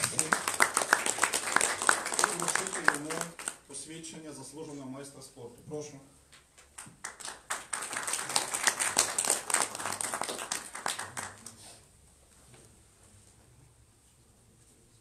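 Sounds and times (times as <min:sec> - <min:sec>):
audience applauding: 0:00.0 - 0:03.6, 0:06.7 - 0:11.7.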